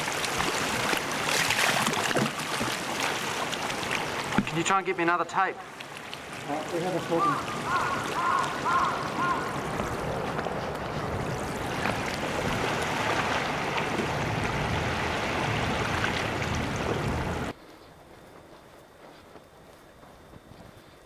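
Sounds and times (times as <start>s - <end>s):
wind on microphone: 7.7s - 17.5s.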